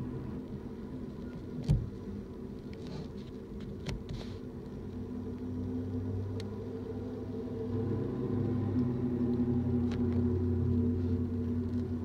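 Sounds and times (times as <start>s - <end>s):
low hum: 5.0s - 12.0s.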